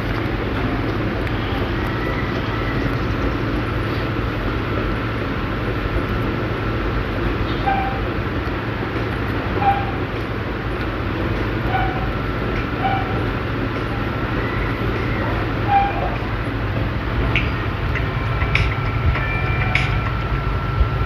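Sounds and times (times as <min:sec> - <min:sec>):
low rumble and hiss: 0:00.0 - 0:21.0
faint whine: 0:11.7 - 0:21.0.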